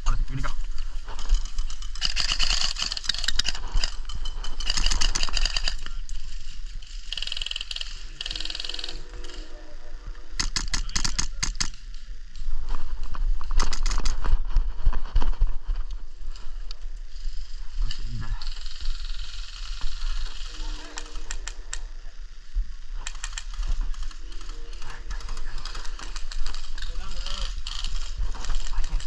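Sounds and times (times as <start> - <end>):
gear clattering and rustling: 0.4 - 9.4
airsoft gunfire: 10.4 - 11.8.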